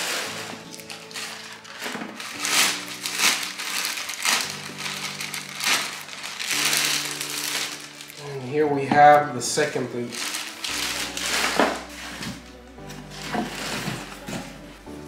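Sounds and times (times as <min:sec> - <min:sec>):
plastic bag crinkling: 0:00.0 - 0:14.8
soft background music: 0:00.0 - 0:15.0.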